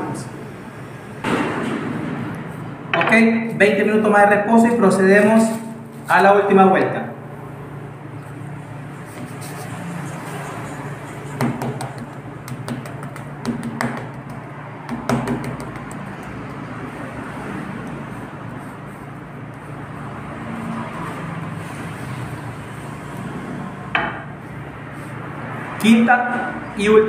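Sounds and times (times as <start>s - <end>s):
steady background hum: 0.0s - 27.0s
sharp knocks: 11.4s - 16.0s, 23.9s - 24.3s
rolling pin rolling dough: 17.8s - 20.0s.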